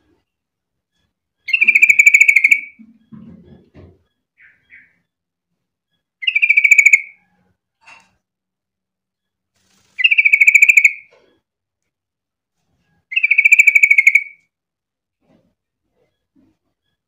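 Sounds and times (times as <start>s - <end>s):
bird trilling: 1.5s - 2.8s, 4.4s - 5.0s, 6.2s - 7.2s, 10.0s - 11.1s, 13.1s - 14.4s.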